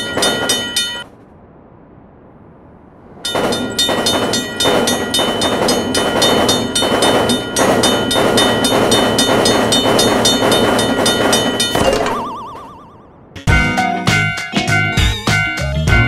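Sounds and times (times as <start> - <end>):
railroad crossing bell ringing: 0.0 - 1.1, 3.2 - 13.1
passing train rumble: 0.0 - 11.8.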